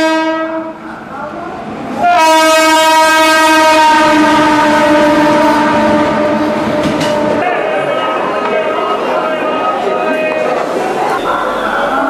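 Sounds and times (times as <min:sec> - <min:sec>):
locomotive horn blast: 0:00.0 - 0:00.8, 0:02.0 - 0:07.8.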